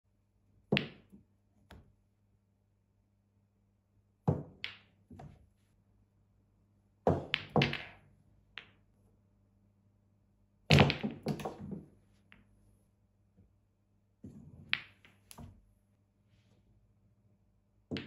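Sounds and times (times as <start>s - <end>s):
snooker balls knocking: 0.7s - 1.8s, 7.1s - 8.0s, 10.7s - 11.9s.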